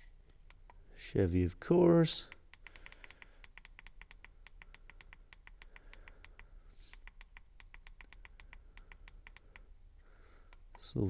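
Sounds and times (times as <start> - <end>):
rapid faint button ticks: 2.3 - 9.7.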